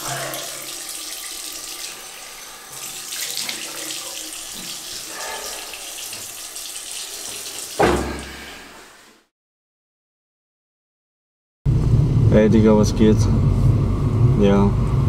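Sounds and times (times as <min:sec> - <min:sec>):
water splashing on face: 0:00.0 - 0:08.8
water running from sink tap: 0:00.0 - 0:09.2
loud deep thump: 0:07.8 - 0:08.4.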